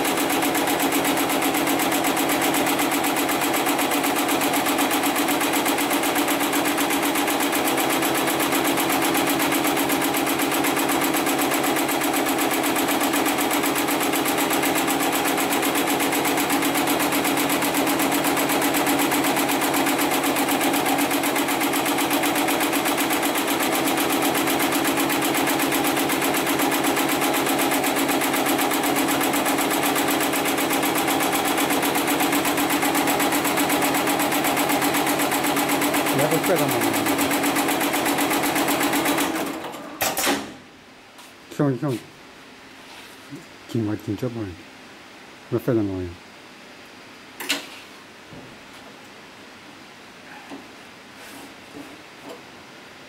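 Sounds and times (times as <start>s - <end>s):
sewing machine stitching: 0.0s - 40.4s.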